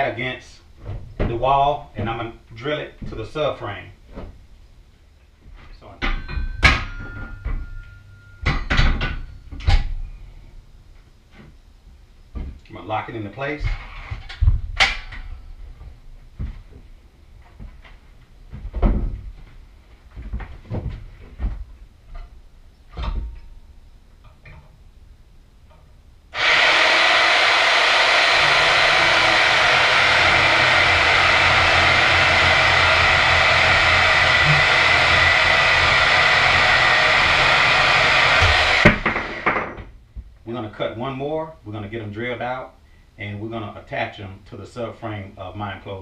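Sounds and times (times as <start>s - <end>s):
clunks and knocks of handling: 12.3s - 12.6s, 15.8s - 23.5s
bandsaw motor running: 26.3s - 39.7s.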